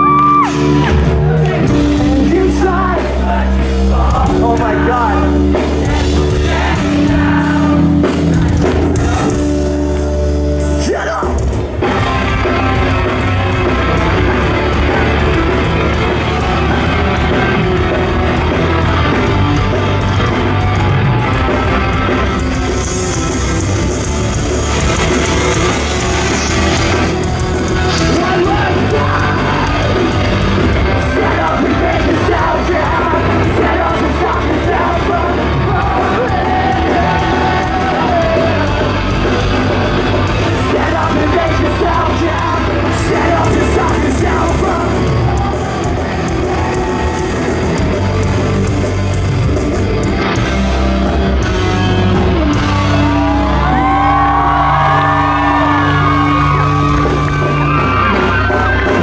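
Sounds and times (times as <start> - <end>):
person singing: 0.0 - 10.0, 27.3 - 47.7
rock band playing live: 0.0 - 59.0.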